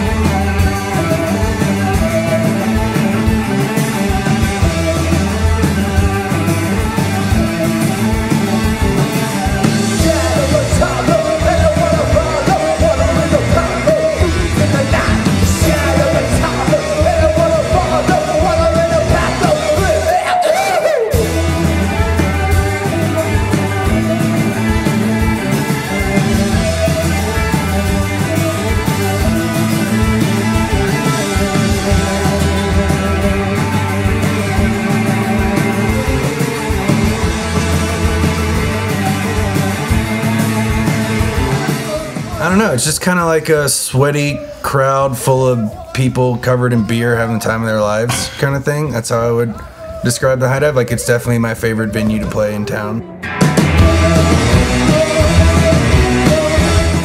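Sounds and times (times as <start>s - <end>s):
rock band playing: 0.0s - 57.0s.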